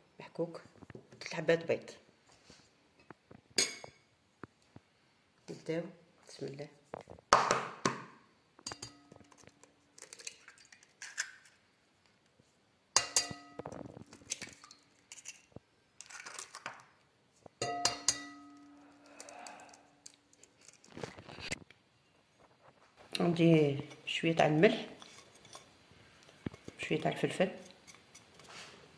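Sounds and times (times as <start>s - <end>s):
glass bowl ringing: 17.6s - 18.7s.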